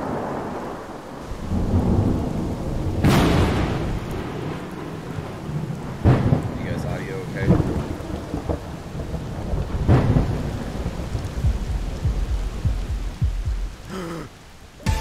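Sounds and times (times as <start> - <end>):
thunderclaps rolling into rumble: 0.0 - 13.9
steady rain: 0.0 - 15.0.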